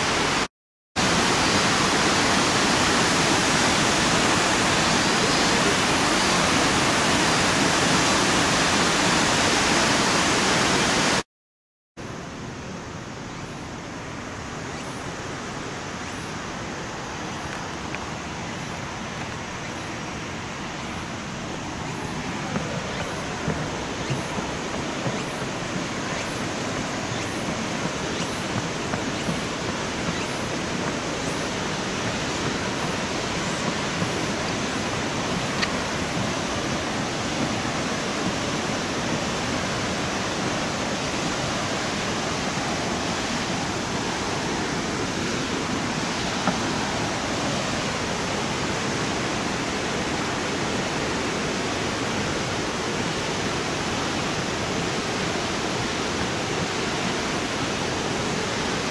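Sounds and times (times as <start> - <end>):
steady rushing noise: 16.0 - 40.1
faint high ticks: 17.4 - 19.9, 33.6 - 36.3.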